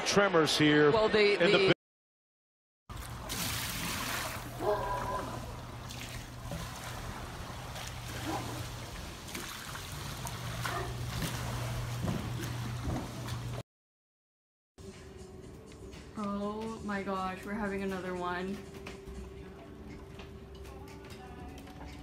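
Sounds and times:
pool water sloshing and spilling: 0:02.9 - 0:13.6.

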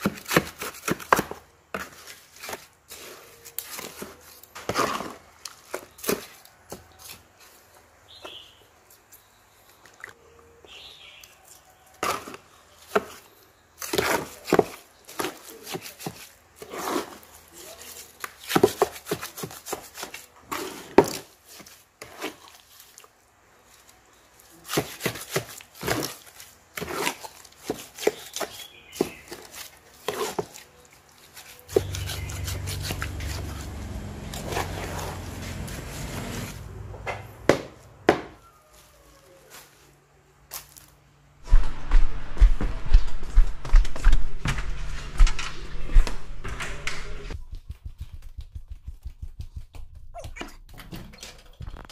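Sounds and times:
trowel scraping terracotta basin: 0:00.0 - 0:07.5, 0:11.4 - 0:22.7, 0:24.5 - 0:36.7
steady low rumble: 0:41.4 - 0:50.2.

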